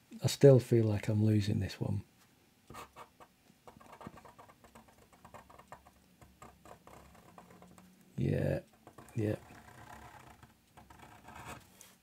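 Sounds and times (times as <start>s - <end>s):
pen scratching and tapping paper: 2.7s - 11.9s.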